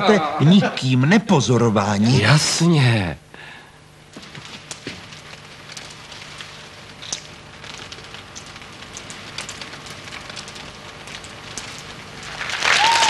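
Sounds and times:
drops ticking on leaves: 4.0 - 13.0.

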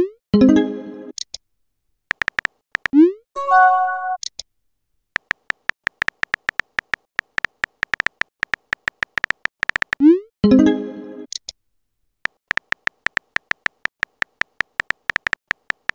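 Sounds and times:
keyboard tapping clicks: 2.1 - 3.0, 5.2 - 10.0, 12.3 - 15.9
chiming tone: 3.4 - 4.2.

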